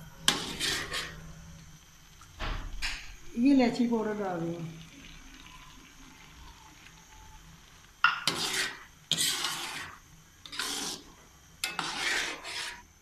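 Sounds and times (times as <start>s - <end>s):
metal spoon scraping a metal pan: 0.2s - 1.3s, 8.1s - 12.9s.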